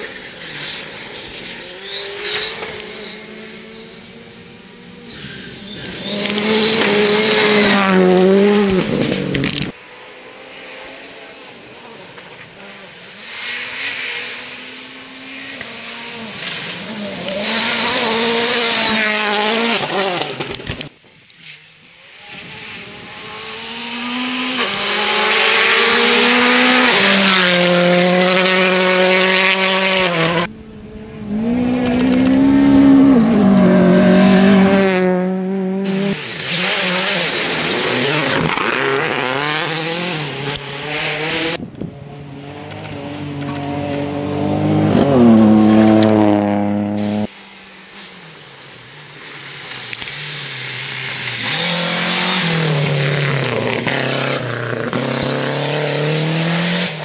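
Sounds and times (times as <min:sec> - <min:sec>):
rally car engines revving hard: 0:00.0 - 0:20.9, 0:22.2 - 0:47.3, 0:49.1 - 0:57.0
gear changes: 0:00.2 - 0:09.8, 0:22.3 - 0:47.3.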